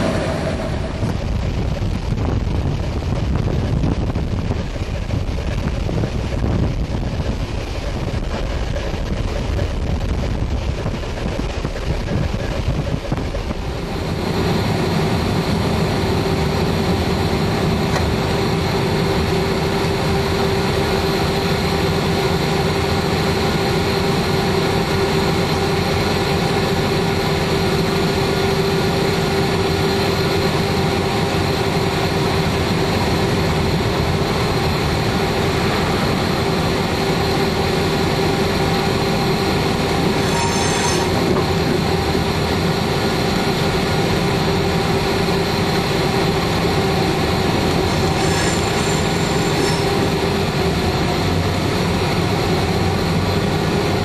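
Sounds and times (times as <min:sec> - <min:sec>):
wind buffeting microphone: 0:00.0 - 0:40.2
locomotive engine rumble: 0:00.0 - 0:54.0
steady hum: 0:00.0 - 0:54.0.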